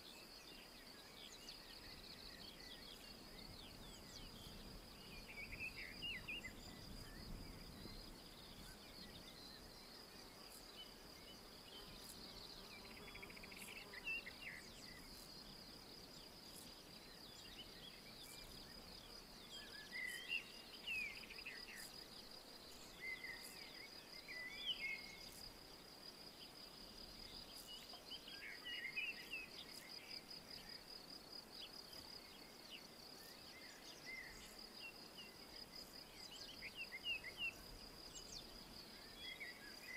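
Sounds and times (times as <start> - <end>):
birds singing: 0.3 - 25.4.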